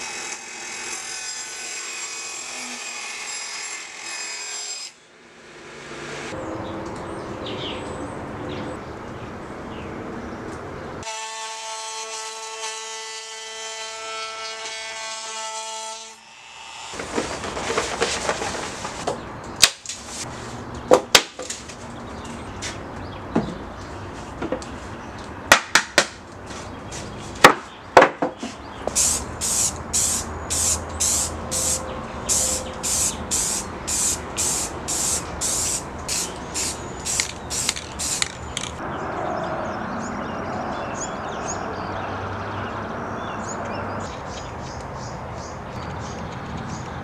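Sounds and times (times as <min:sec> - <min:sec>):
outdoor ambience: 0:00.0 - 0:47.0
paper handling: 0:17.0 - 0:19.1
spray can hissing bursts: 0:28.9 - 0:38.8.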